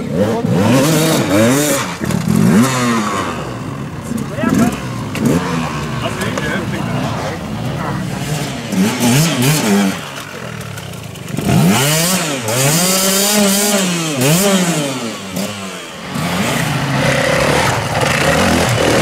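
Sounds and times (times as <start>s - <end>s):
dirt bike engine revving: 0.0s - 19.0s
wheel spinning in mud: 16.1s - 19.0s.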